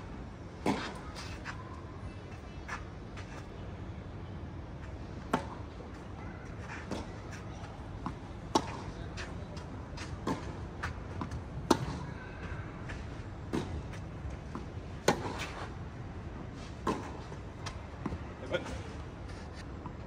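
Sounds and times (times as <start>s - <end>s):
tennis ball hit by rackets: 8.0s - 9.0s, 10.0s - 12.0s, 14.6s - 15.6s.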